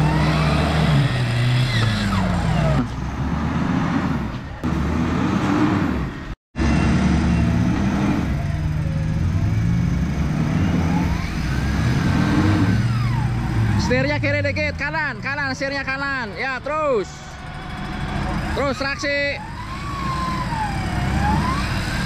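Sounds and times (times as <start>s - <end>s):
suv engine revving under load: 0.0s - 8.4s, 9.4s - 14.3s, 19.4s - 22.0s.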